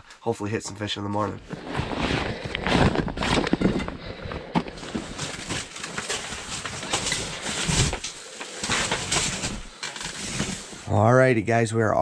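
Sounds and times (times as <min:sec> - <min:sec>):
fabric and gear rustling: 0:01.4 - 0:10.9.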